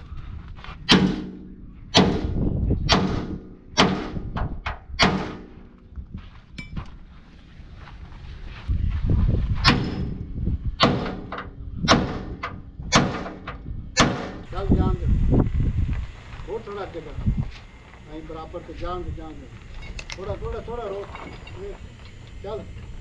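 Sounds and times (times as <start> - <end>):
sledgehammer striking steel frame: 0.9 - 5.7, 9.6 - 10.2, 10.8 - 14.5.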